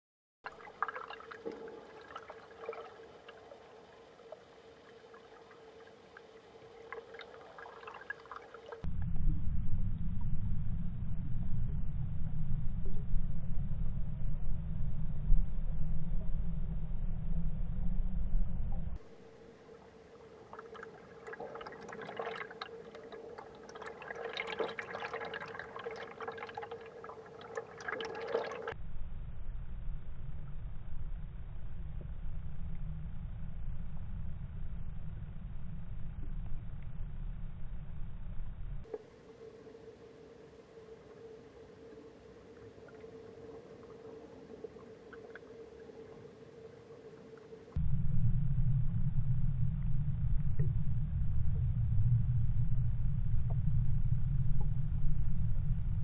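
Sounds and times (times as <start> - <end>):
underwater steady hum: 0.4 - 56.0
underwater clicks and crackles: 0.5 - 8.9, 18.7 - 28.8, 38.8 - 47.8
loud low rumble: 8.9 - 19.0, 47.8 - 56.0.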